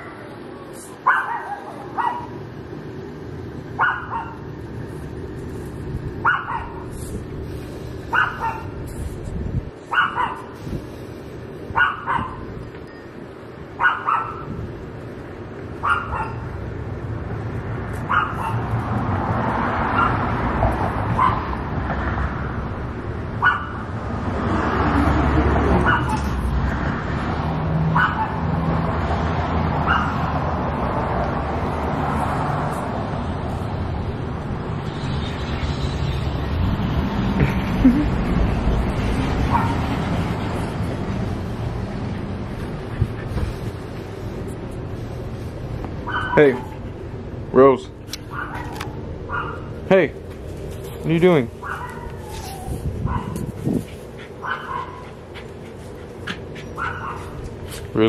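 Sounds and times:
passing traffic: 0.0 - 58.0
small dog barking: 1.0 - 2.4, 3.8 - 4.5, 6.2 - 6.9, 8.1 - 8.8, 9.9 - 10.6, 11.7 - 12.5, 13.8 - 14.6, 15.8 - 16.5, 18.0 - 18.7, 19.9 - 20.3, 21.1 - 21.6, 23.4 - 23.9, 25.8 - 26.4, 27.9 - 28.5, 29.8 - 30.3, 39.5 - 39.8, 46.0 - 46.8, 48.3 - 49.8, 51.6 - 53.6, 54.4 - 55.1, 56.8 - 57.4.

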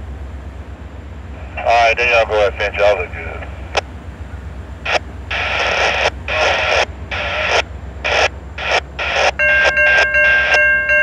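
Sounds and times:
rhythmic bursts of noise: 1.2 - 11.0
electronic crossing bell ringing: 9.1 - 11.0.

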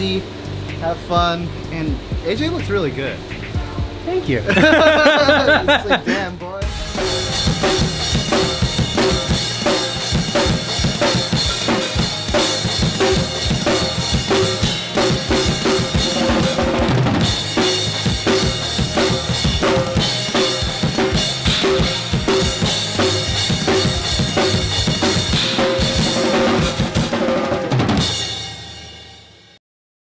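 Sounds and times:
kick drum: 3.5 - 4.0
snare drum: 6.6 - 28.2
cymbals: 6.6 - 29.4.

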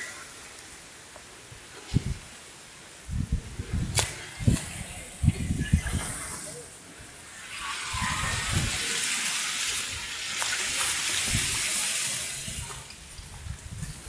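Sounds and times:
wind thumping on microphone: 1.8 - 2.3, 3.1 - 6.5, 7.9 - 8.9, 9.9 - 14.0.

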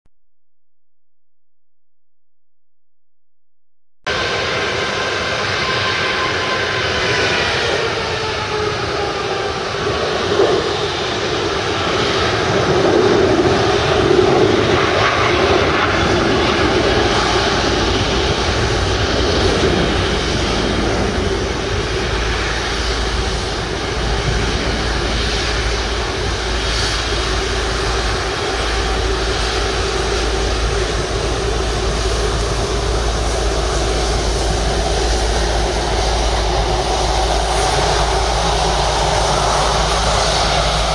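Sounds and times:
jet engines whining at low thrust: 4.1 - 40.9
low rumble: 11.7 - 40.9.

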